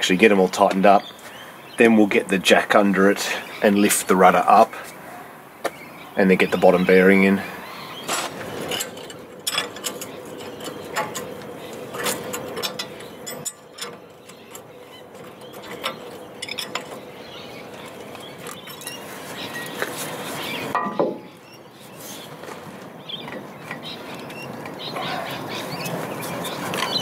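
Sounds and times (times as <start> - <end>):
spanner clinking on bolts: 8.1 - 21.1.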